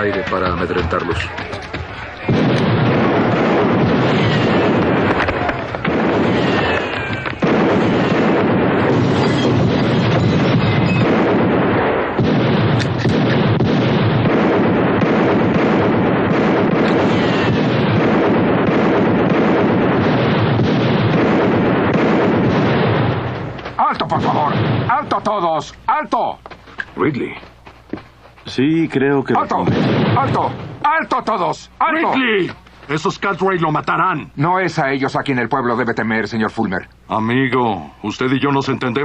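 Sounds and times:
heavy gunfire: 0:00.0 - 0:25.6, 0:29.4 - 0:31.3.

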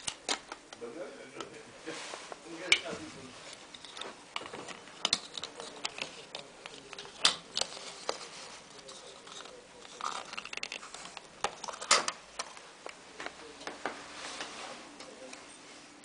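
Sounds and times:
small clicks taps and rustles: 0:02.3 - 0:14.0.

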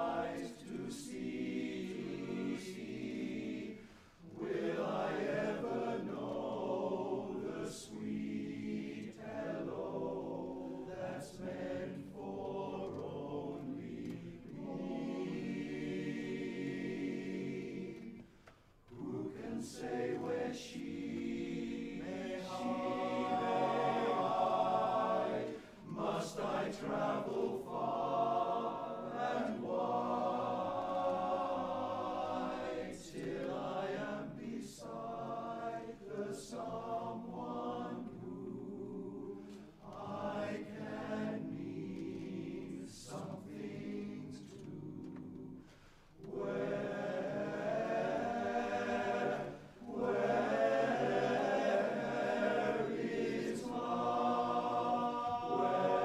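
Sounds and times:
male chorus singing a cappella: 0:00.0 - 0:56.0.

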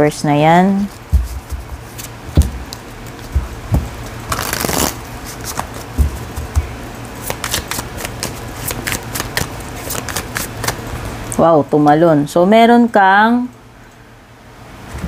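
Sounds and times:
cards riffling: 0:00.9 - 0:11.0
cards clicking and tapping: 0:05.4 - 0:10.8.

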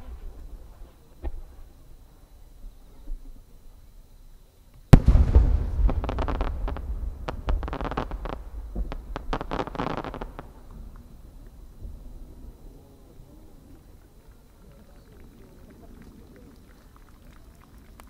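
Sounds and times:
firework boom: 0:04.9 - 0:13.5
firework crackling: 0:04.9 - 0:14.2
low rumbling echo: 0:05.0 - 0:09.5, 0:10.2 - 0:14.0.

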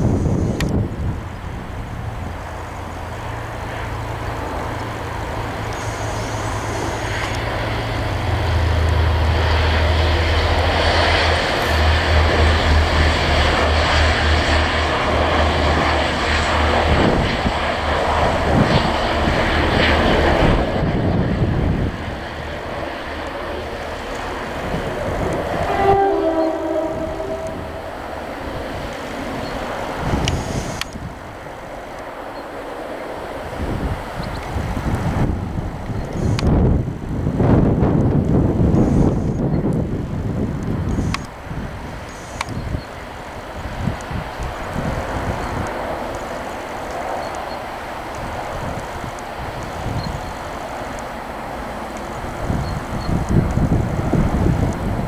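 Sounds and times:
train engine rumble: 0:00.0 - 0:55.0
wheels on rails: 0:00.0 - 0:55.0
train horn: 0:25.2 - 0:28.4.

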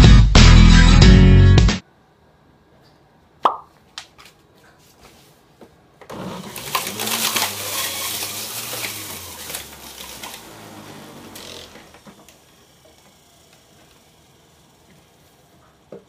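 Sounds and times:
juicer motor grinding whirr: 0:06.0 - 0:16.0.

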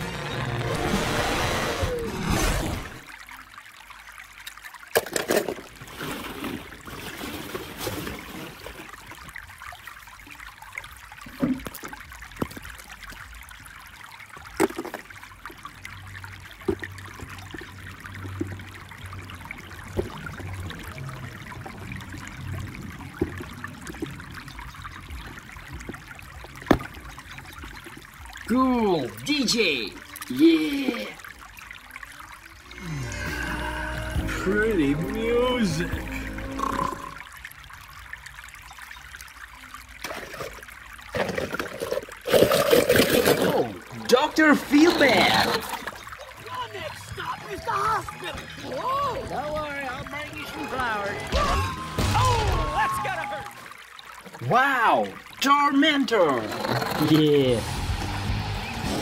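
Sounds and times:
film soundtrack music: 0:00.0 - 0:03.1, 0:32.7 - 0:37.3, 0:57.6 - 0:59.0.

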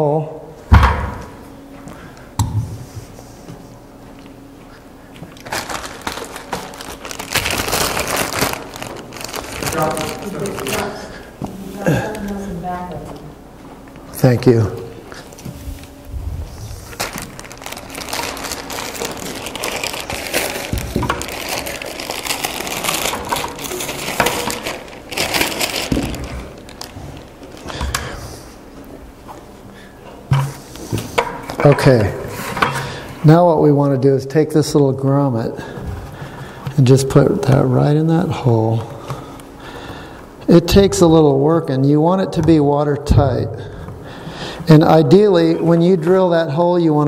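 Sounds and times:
crackling and rustling handling: 0:05.1 - 0:29.6
plastic bag crinkling: 0:05.3 - 0:11.3, 0:16.5 - 0:28.3.

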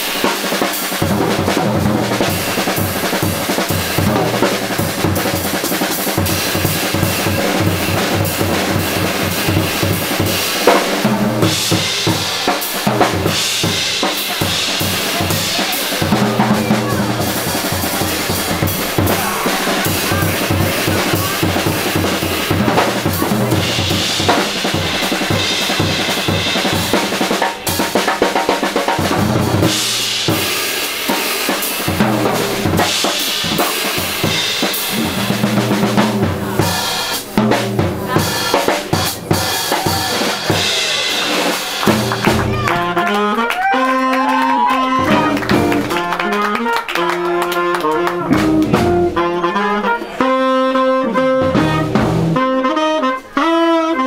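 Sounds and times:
busy drum kit: 0:00.0 - 0:54.0
jazz band playing: 0:00.0 - 0:54.0
low bass notes: 0:45.0 - 0:46.1, 0:48.2 - 0:49.3, 0:51.3 - 0:52.4.

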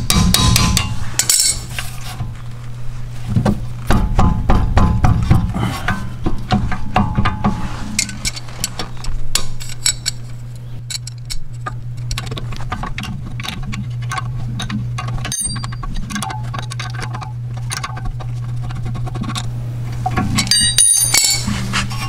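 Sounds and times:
steady low hum: 0:00.0 - 0:22.0
wrench clinking against metal: 0:00.8 - 0:01.7, 0:13.4 - 0:17.9, 0:20.4 - 0:21.5.

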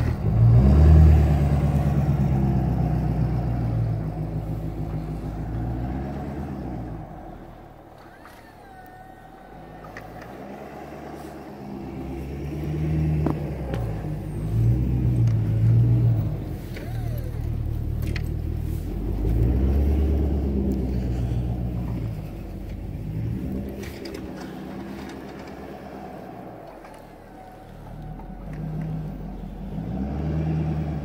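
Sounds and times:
pickup truck engine revving: 0:00.0 - 0:31.0.

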